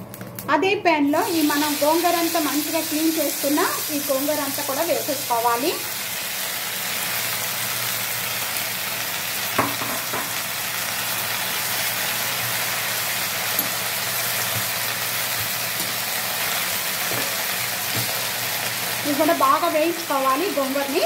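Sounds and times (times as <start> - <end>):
leaves sizzling in hot oil: 1.1 - 21.0.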